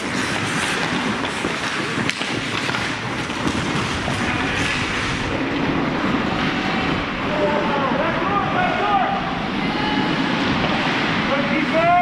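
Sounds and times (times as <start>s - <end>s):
ice skates scraping on ice: 0.0s - 7.0s
steady rushing noise: 0.0s - 12.0s.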